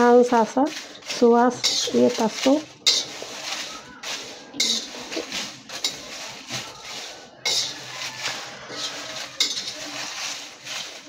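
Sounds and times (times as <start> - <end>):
dry leaves rustling: 0.0 - 11.0
spatula scraping in pan: 0.0 - 11.0.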